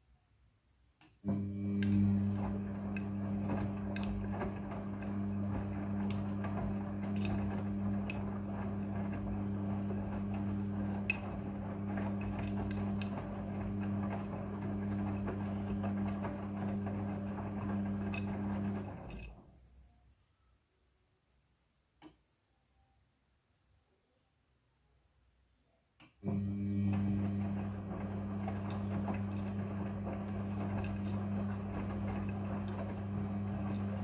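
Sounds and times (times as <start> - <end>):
washing machine motor hum: 1.2 - 19.6, 26.2 - 34.0.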